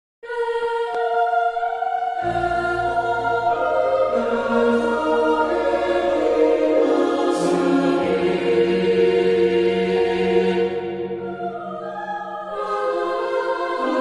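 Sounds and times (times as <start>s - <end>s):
choir-like voices music: 0.2s - 14.0s.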